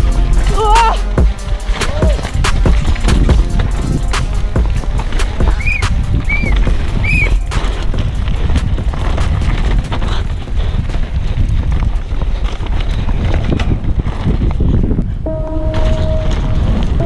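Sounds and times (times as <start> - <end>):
music with held tone: 0.0 - 7.9, 15.3 - 17.0
bike chain and frame rattling: 0.0 - 17.0
tyres crunching on gravel: 0.0 - 17.0
wind buffeting microphone: 1.2 - 17.0.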